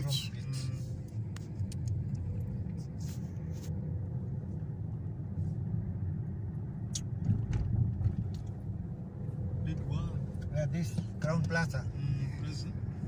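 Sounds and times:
car driving rumble from inside: 0.0s - 13.0s.

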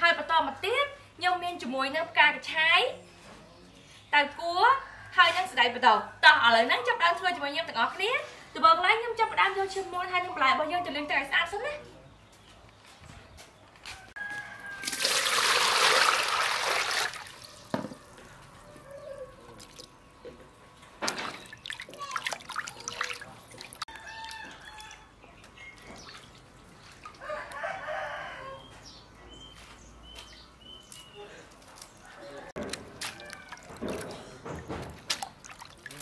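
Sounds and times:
rooster crowing: 13.8s - 15.5s, 17.2s - 19.6s, 23.9s - 25.2s, 27.2s - 28.8s, 32.0s - 33.9s
water pouring into metal basin: 14.8s - 17.5s
water dripping: 21.1s - 24.4s, 35.0s - 36.0s
hands splashing in water: 32.6s - 34.2s.

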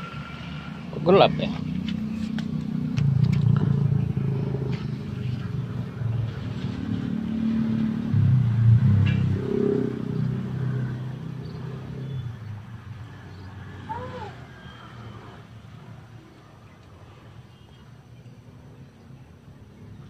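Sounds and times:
vehicle engine rumbling: 0.0s - 19.9s.

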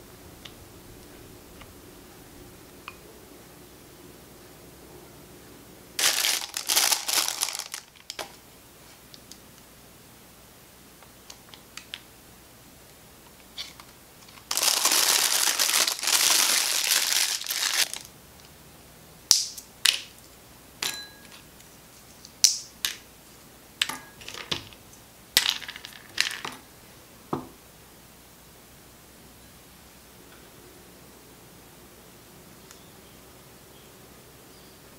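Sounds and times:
plastic bag crinkling: 6.0s - 8.3s, 14.2s - 18.1s
nut shells cracking: 19.3s - 20.1s.

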